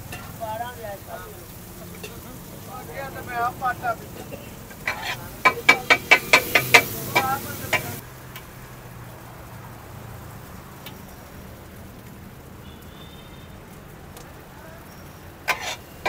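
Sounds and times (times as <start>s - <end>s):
metal spatulas clanking on griddle: 0.0s - 0.4s, 1.9s - 2.3s, 4.2s - 8.0s, 15.5s - 15.9s
food sizzling on griddle: 0.0s - 16.0s.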